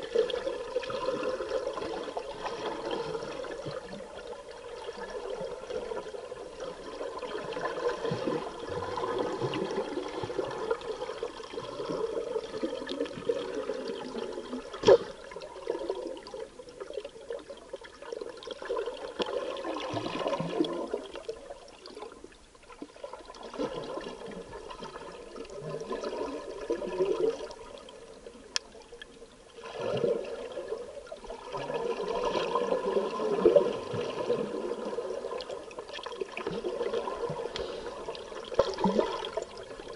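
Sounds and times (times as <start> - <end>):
scuba regulator bubbles: 0.0 - 39.9
underwater breathing: 36.8 - 39.4.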